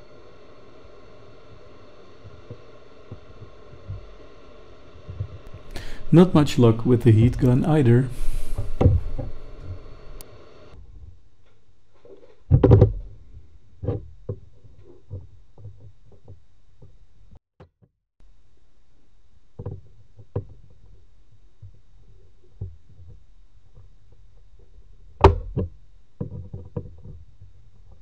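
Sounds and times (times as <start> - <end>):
heat gun blowing air: 0.0 - 10.7.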